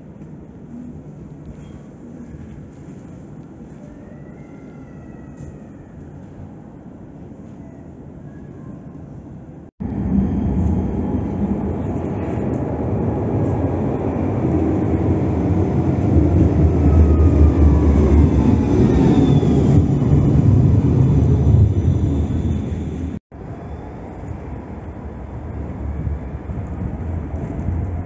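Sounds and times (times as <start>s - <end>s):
tram wheels rumbling on rails: 9.8s - 28.0s.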